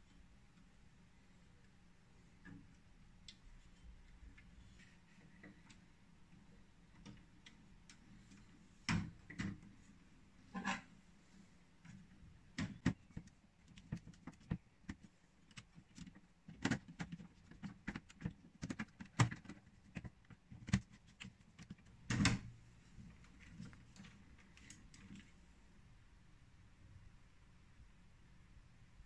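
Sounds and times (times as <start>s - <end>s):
small clicks and knocks: 11.8s - 25.4s.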